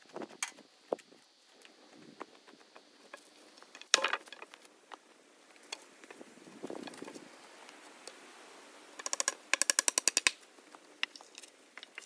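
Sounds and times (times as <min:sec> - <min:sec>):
footsteps on rough ground: 0:00.0 - 0:08.0.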